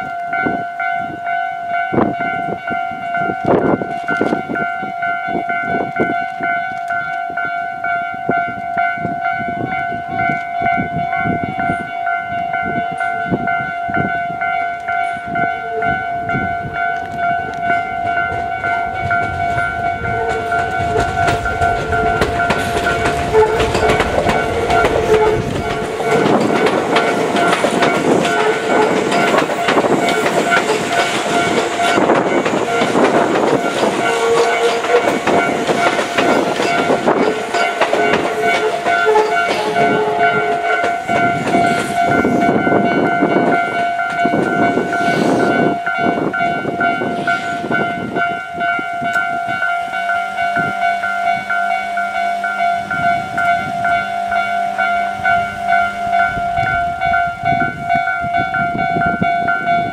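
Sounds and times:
electric trains rumbling past: 0.0 - 59.9
level-crossing warning bell: 0.0 - 59.9
wheels clattering over rail joints: 16.8 - 44.5.

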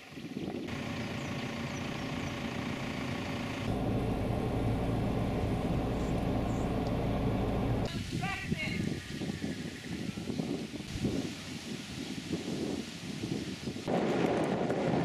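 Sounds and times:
outdoor background noise: 0.0 - 15.0
road and tyre noise: 0.7 - 8.0
vehicle engine hum: 0.7 - 8.0.

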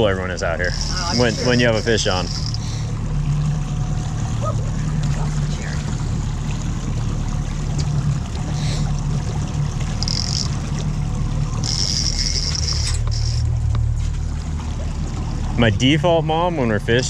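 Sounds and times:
outboard motor running: 0.0 - 17.0
water washing past hull: 0.0 - 17.0
high buzz: 0.6 - 2.9, 11.5 - 13.6.

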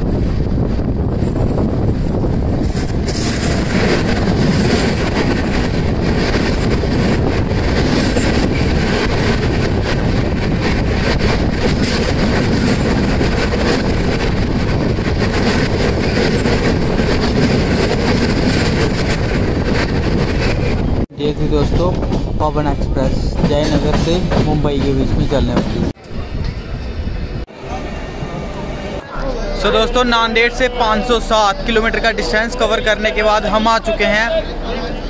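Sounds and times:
rush of air from passing train: 0.0 - 21.1
train wheels clattering over rail joints: 2.6 - 20.9, 21.6 - 26.5.

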